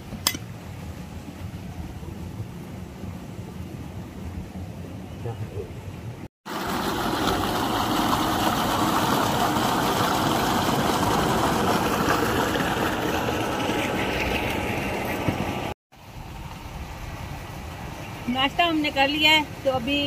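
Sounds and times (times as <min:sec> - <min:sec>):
water gushing from a pipe: 0:06.5 - 0:18.1.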